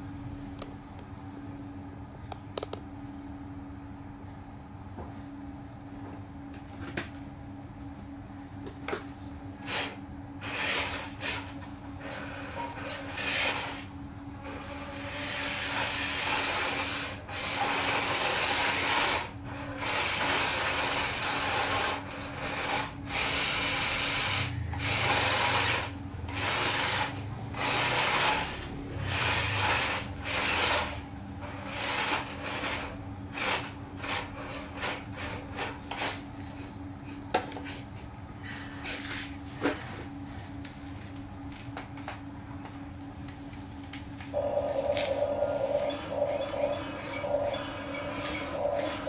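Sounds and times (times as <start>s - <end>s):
steady low hum: 0.0s - 49.0s
toy truck motor whirring: 9.6s - 36.2s, 44.4s - 49.0s.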